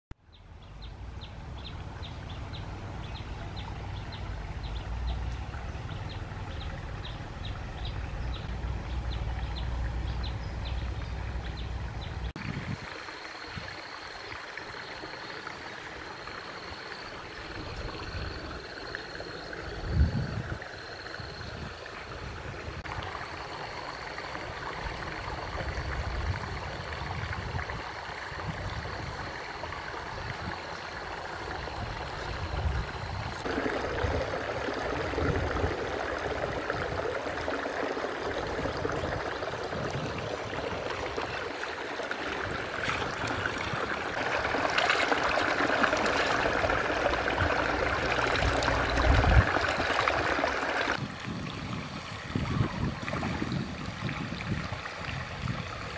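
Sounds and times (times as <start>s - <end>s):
shallow stream running: 0.2s - 55.9s
low uneven rumble: 0.4s - 12.8s, 28.4s - 55.8s
hands splashing in water: 42.2s - 50.4s.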